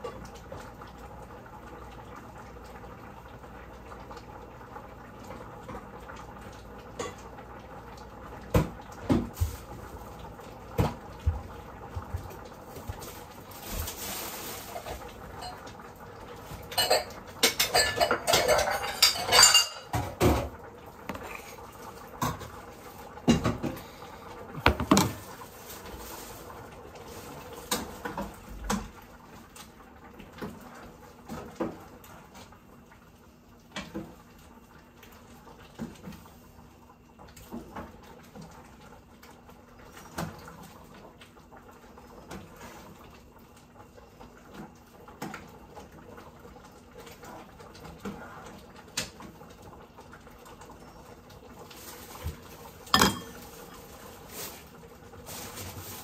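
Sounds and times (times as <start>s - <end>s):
dishes and pots clattering: 7.0s - 7.3s, 14.6s - 15.7s, 16.5s - 20.5s, 24.6s - 25.3s, 52.2s - 53.8s.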